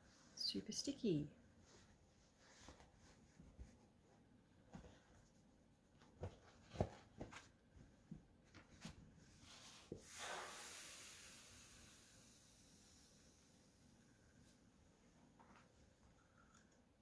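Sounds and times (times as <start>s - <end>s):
steam iron hissing: 10.0s - 13.6s.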